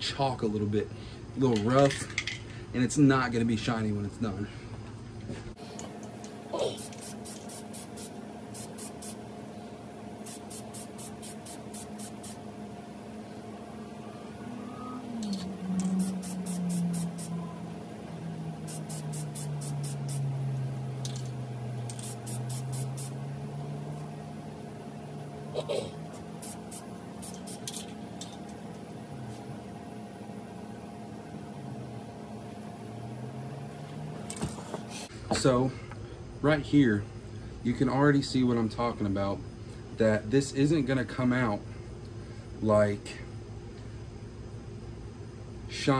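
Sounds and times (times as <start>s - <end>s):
steady low hum: 0.0s - 45.9s
aerosol can spraying hisses: 6.6s - 9.2s, 10.2s - 12.4s, 16.0s - 17.3s, 18.6s - 20.3s, 21.8s - 23.2s, 26.4s - 28.0s
low hum: 11.4s - 34.3s.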